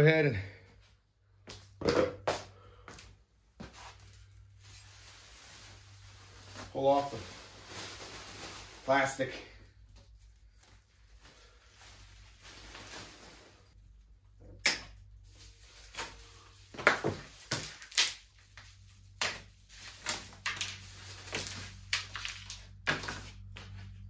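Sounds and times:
plastic packaging crinkling: 4.6 - 9.2, 15.3 - 23.5.

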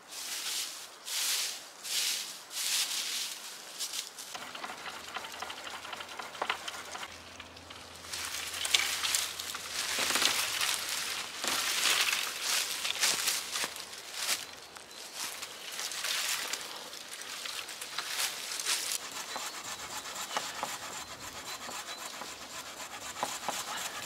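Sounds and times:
dry leaves crunching: 0.0 - 4.6, 7.1 - 19.0
saplings rustling and snapping: 2.8 - 19.0.

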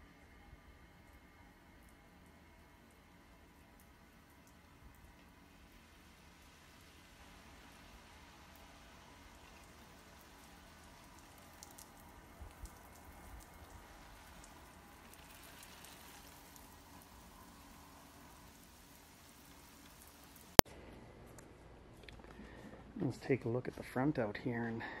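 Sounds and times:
sprinkler spray hissing: 3.8 - 20.6
small ticks: 13.6 - 16.7.

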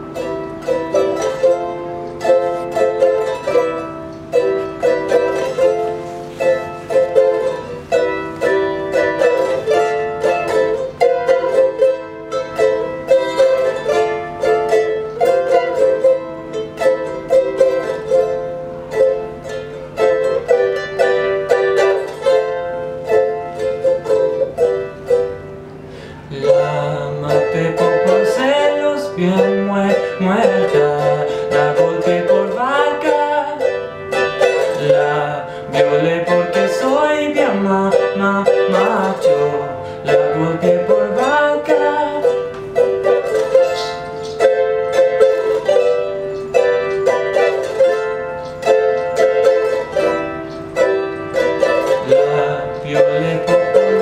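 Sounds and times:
ukulele picking: 0.0 - 54.0
man singing: 26.3 - 42.6, 51.6 - 54.0.

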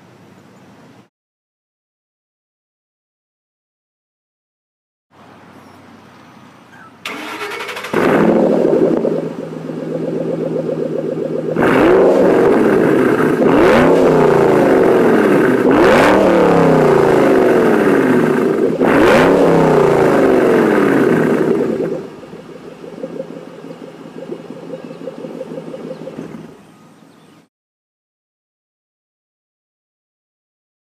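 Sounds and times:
car engine starting and revving: 7.0 - 26.7.

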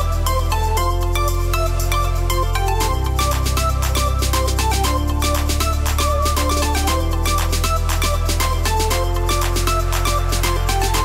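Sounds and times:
bass line: 0.0 - 11.0
electronic music with beat: 0.0 - 11.0.

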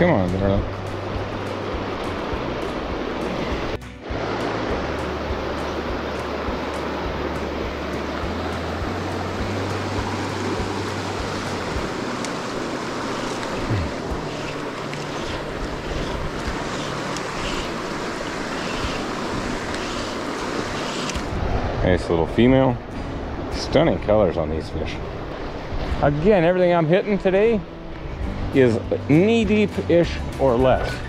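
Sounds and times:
stream rushing over gravel: 0.0 - 22.7.

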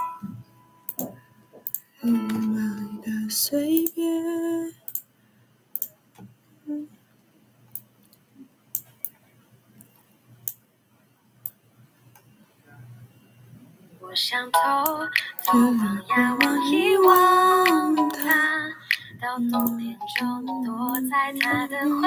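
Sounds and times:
low steady hum: 0.0 - 22.0
sharp clicks: 0.9 - 1.8, 5.8 - 6.0, 16.4 - 20.3, 20.9 - 21.8.

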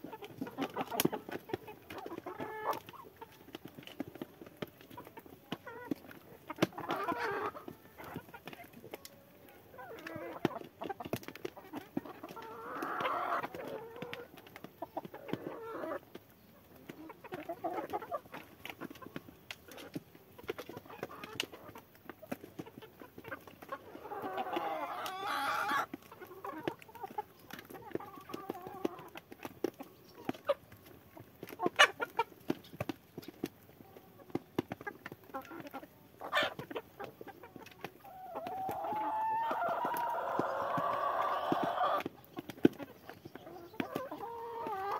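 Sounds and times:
hens clucking: 0.0 - 44.9.

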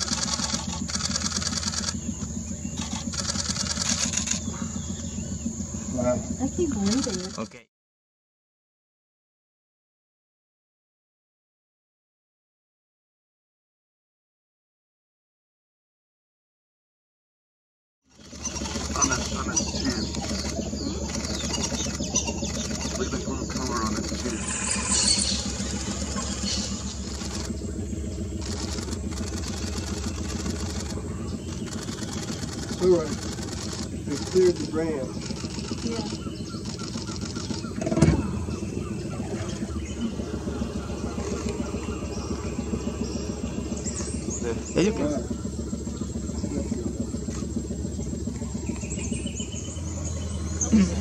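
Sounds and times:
birds calling: 0.0 - 7.6, 18.1 - 51.0
boat motor idling: 0.0 - 7.6, 18.1 - 51.0.

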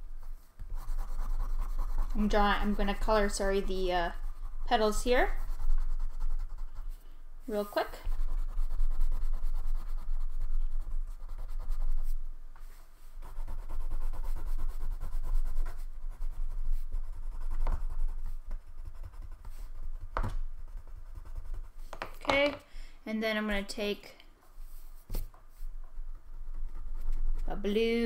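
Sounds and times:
wax crayon scribbling on paper: 0.7 - 6.9, 7.6 - 12.2, 13.2 - 19.9.

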